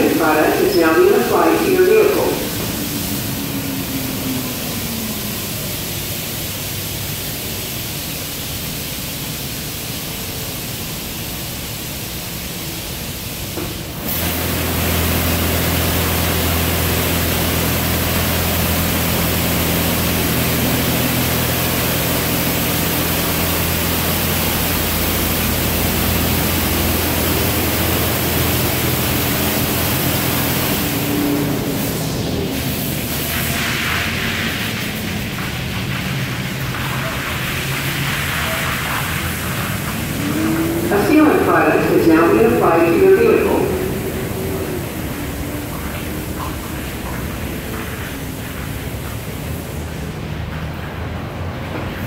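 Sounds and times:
water jets spraying: 0:00.0 - 0:52.0
pump motor humming: 0:13.9 - 0:50.0.

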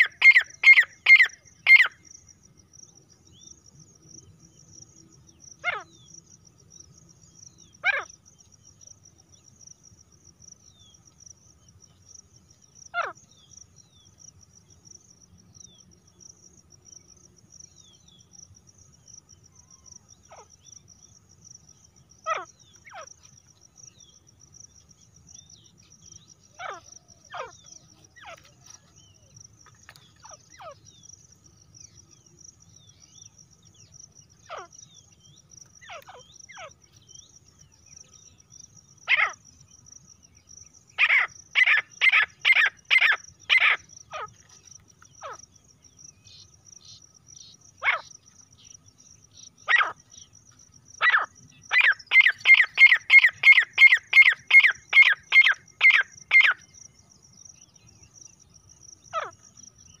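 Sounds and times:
francolin calling: 0:00.0 - 0:03.6, 0:19.3 - 1:00.0.

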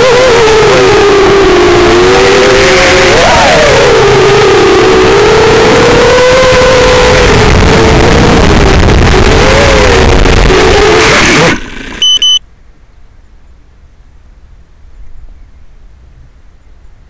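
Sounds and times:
drone motors whining: 0:00.0 - 0:12.4
short high electronic beeps: 0:12.0 - 0:12.4.

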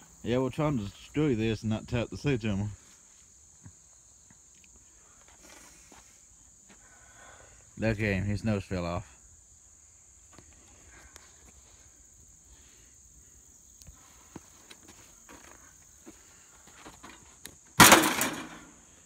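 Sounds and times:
insects chirring: 0:00.0 - 0:19.0
small ticks and scuffs: 0:02.8 - 0:07.0, 0:10.1 - 0:17.8.

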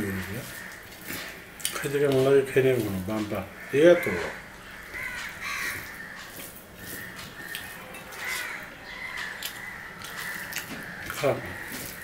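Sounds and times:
bird cawing: 0:00.0 - 0:01.6, 0:03.2 - 0:12.0
fingers mixing rice on steel plate: 0:00.4 - 0:12.0
eating clicks and smacks: 0:04.9 - 0:12.0.

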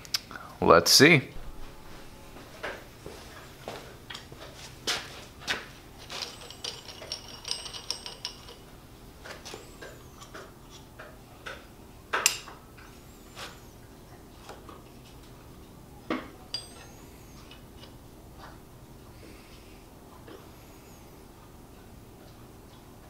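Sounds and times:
high ringing tone: 0:01.4 - 0:03.1, 0:16.4 - 0:17.5.

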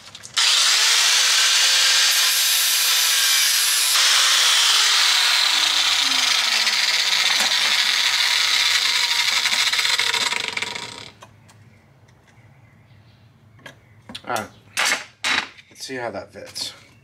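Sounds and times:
angle grinder cutting steel: 0:00.4 - 0:11.2.

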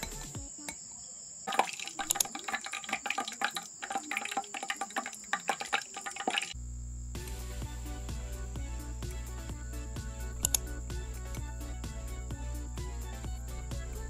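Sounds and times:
oil pouring and splashing: 0:01.5 - 0:06.6.

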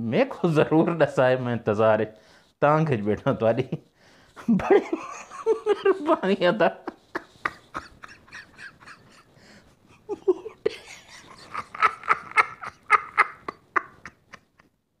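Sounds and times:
man laughing hard: 0:04.4 - 0:09.3, 0:10.0 - 0:14.7.

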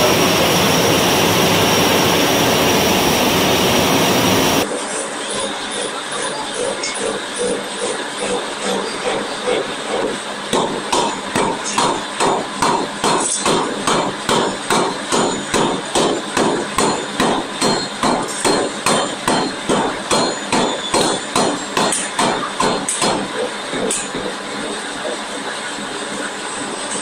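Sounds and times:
forging hammer pounding metal: 0:10.4 - 0:24.4.

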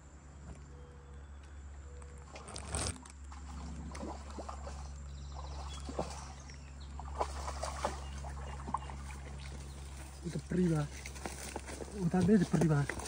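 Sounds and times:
steady low rumble: 0:00.0 - 0:13.0
rustling in grass: 0:07.1 - 0:13.0.

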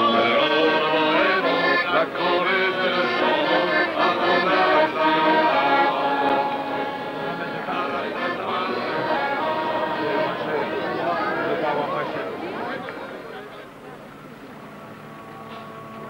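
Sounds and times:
men singing in chorus: 0:00.0 - 0:12.1
accordion playing folk tune: 0:00.0 - 0:16.0.

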